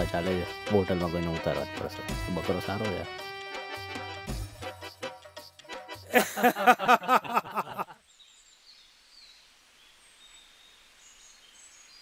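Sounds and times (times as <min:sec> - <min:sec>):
loud background music: 0:01.6 - 0:05.0
faint outdoor ambience: 0:06.1 - 0:12.0.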